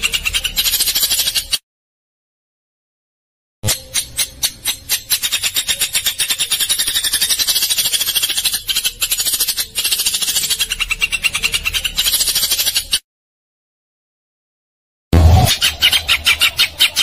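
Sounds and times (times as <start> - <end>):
rapid dry chattering call: 0.0 - 1.6, 3.6 - 13.0, 15.2 - 17.0.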